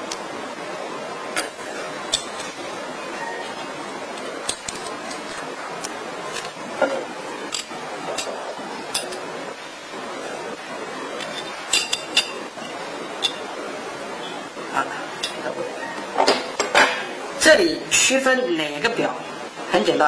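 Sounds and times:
steady background noise: 0.0s - 20.0s
small metal parts clinking: 4.4s - 5.5s.

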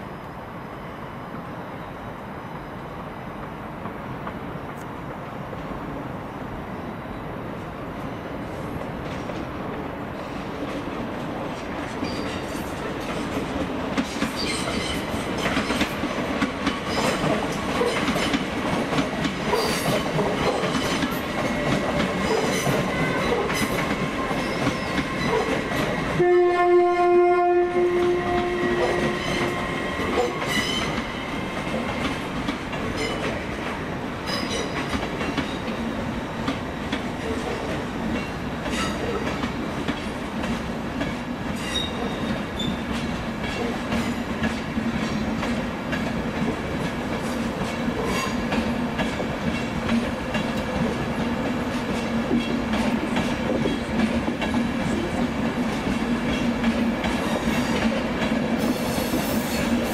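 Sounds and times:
train wheels clicking over rail joints: 8.8s - 26.2s, 28.1s - 59.9s
train horn blast: 26.2s - 30.7s.

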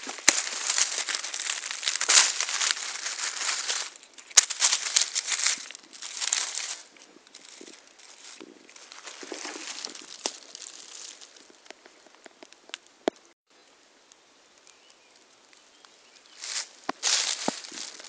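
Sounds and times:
dry leaves rustling and crunching: 0.0s - 11.7s, 16.2s - 18.0s.

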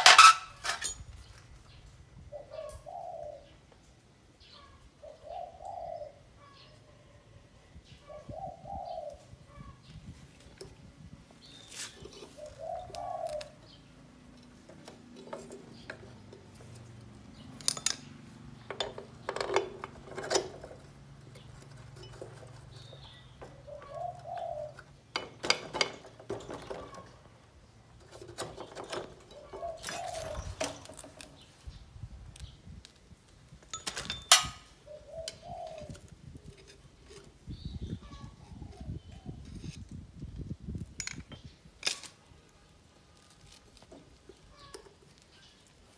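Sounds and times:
hand tools clinking on metal: 0.0s - 1.2s, 14.2s - 24.0s, 33.7s - 34.7s
dove cooing: 2.3s - 3.6s, 5.0s - 7.4s, 8.0s - 9.9s, 11.9s - 16.6s, 22.0s - 25.0s, 28.8s - 30.8s, 34.8s - 39.4s.

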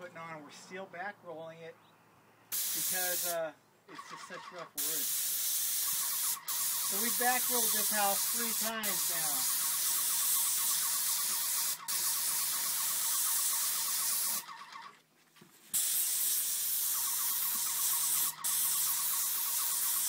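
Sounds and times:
paint sprayer hissing: 2.5s - 3.4s, 4.1s - 15.0s, 15.7s - 20.0s.

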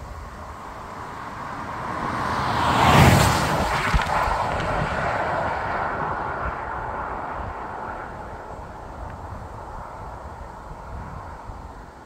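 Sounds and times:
car driving past: 0.5s - 9.2s.

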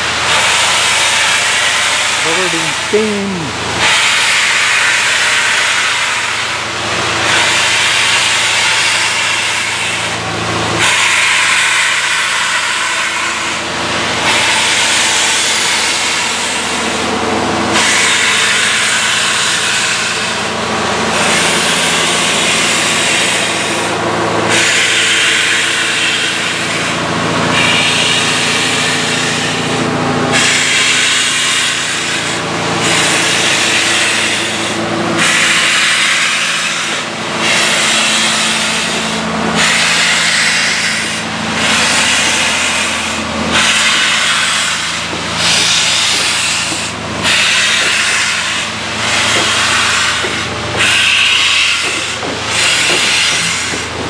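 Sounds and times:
steam locomotive hissing bursts: 0.0s - 54.0s.

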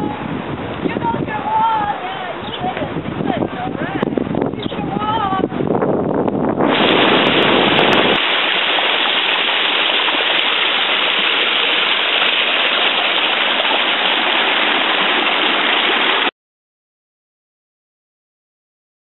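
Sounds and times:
water rushing over terraces: 6.6s - 16.3s.

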